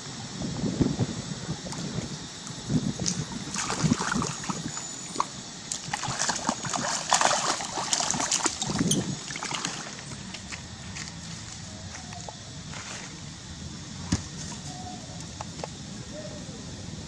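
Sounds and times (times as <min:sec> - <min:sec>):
water splashing: 0:03.0 - 0:11.6.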